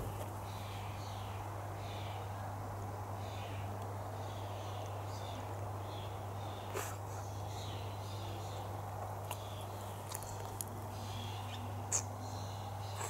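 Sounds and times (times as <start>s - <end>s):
steady low hum: 0.0s - 13.0s
faint bird chirps: 9.3s - 13.0s.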